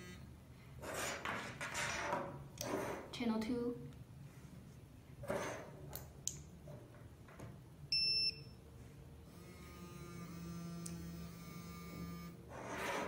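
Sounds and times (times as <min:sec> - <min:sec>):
quiet steady buzz: 0:02.5 - 0:13.0.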